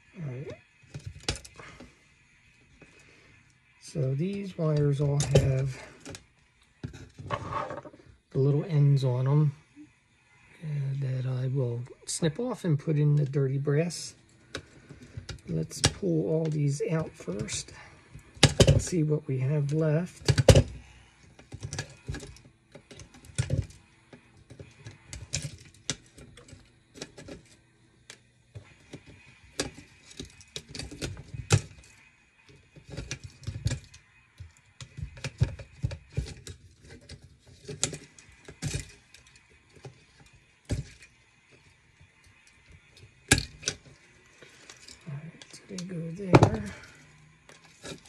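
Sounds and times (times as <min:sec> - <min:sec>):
pliers clicking and snipping wires: 0:24.5 - 0:27.5, 0:32.8 - 0:41.1, 0:42.6 - 0:44.0.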